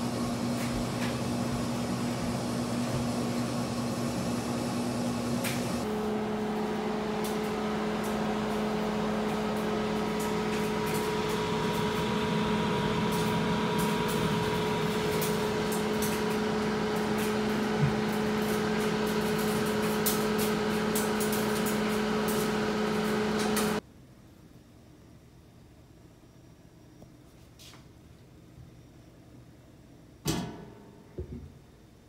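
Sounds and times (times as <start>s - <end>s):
oven cooling fan humming: 0.0s - 23.8s.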